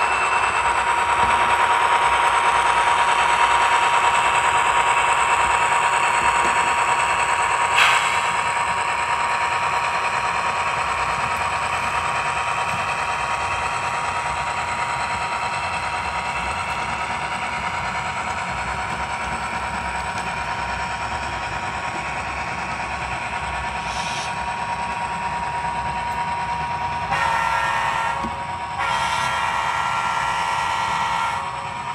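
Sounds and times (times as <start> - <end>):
model train diesel engine sound: 0.0 - 31.9
train rolling on track: 0.0 - 31.9
train horn: 27.0 - 31.7.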